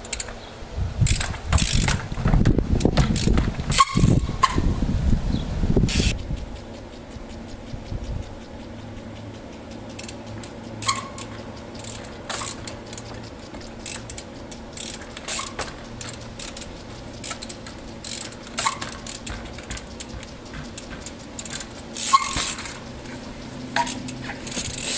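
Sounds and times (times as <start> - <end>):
bicycle freewheel ratcheting: 0.0 - 4.8, 5.8 - 24.9
bike tyres and frame knocking: 0.0 - 4.8, 5.9 - 24.9.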